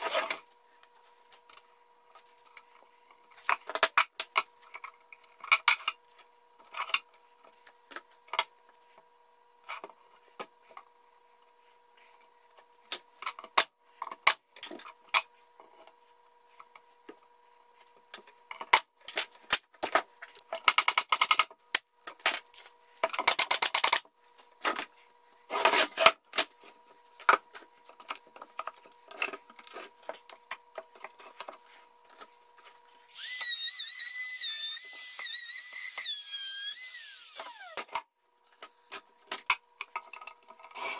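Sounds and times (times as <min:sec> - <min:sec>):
power tool whining: 0:33.1 - 0:38.0.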